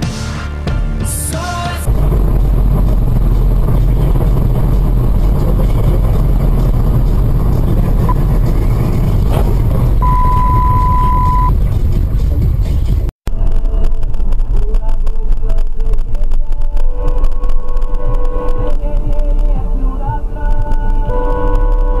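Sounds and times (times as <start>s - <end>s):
car road and engine rumble: 1.8s - 22.0s
high beep: 10.0s - 11.5s.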